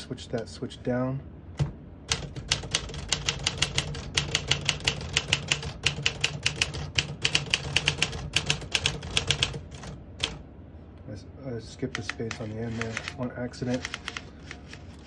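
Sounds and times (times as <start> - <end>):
manual typewriter typing: 2.1 - 10.4, 12.0 - 15.0.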